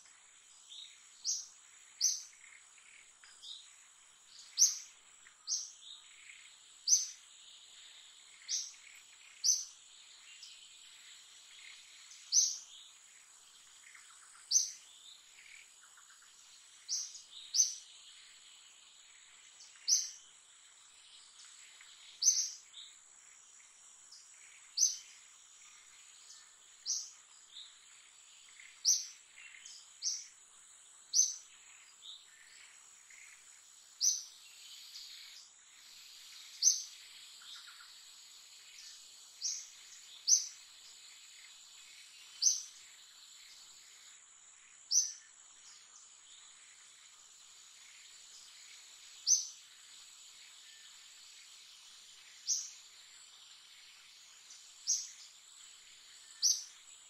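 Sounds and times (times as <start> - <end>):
bird chirping: 0.0 - 57.0.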